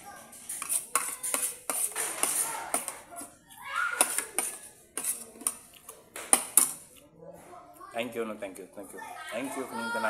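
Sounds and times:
tableware clinking on plate: 4.0 - 6.8.

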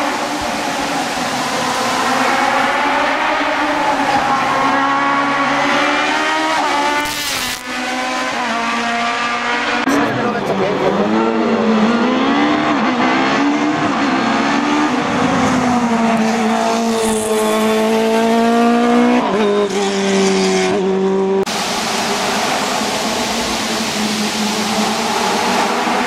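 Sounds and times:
racing car engine revving: 0.0 - 26.0
even rushing noise: 21.5 - 26.0.

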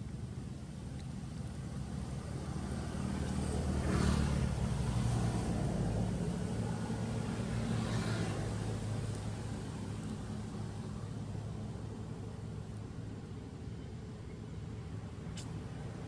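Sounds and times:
vehicle engine humming: 0.0 - 16.0
vehicle passing: 1.7 - 12.1.

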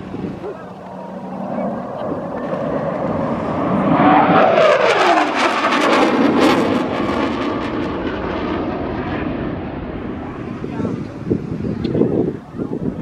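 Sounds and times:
jet flying past: 0.0 - 13.0.

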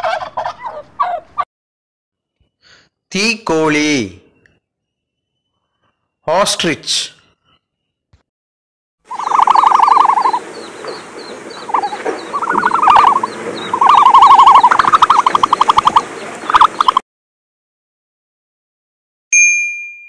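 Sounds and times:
small birds chirping: 2.3 - 8.1, 9.1 - 17.0
rapid pulsed bird calls: 3.8 - 6.4, 7.1 - 8.1, 9.1 - 17.0
bell-like ding: 19.3 - 20.0.

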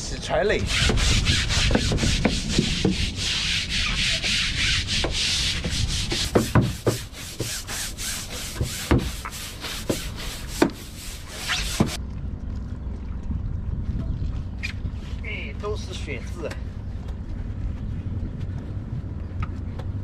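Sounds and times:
brush scrubbing boat deck: 0.2 - 12.0
sharp knocks: 6.1 - 7.6.

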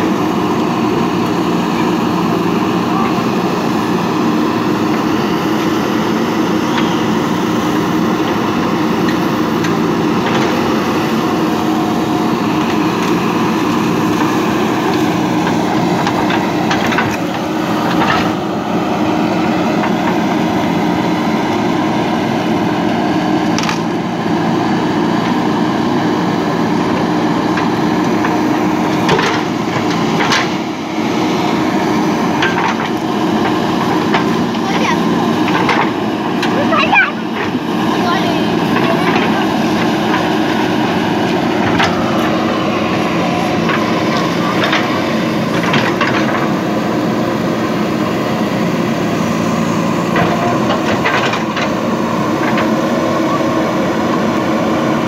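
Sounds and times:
diesel engine running under load: 0.0 - 55.0.

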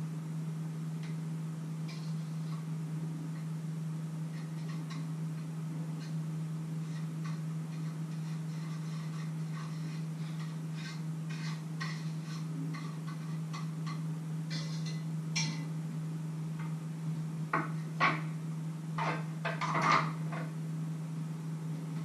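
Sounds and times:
steady low hum: 0.0 - 22.0
utensils clinking against dishes: 11.4 - 15.7.

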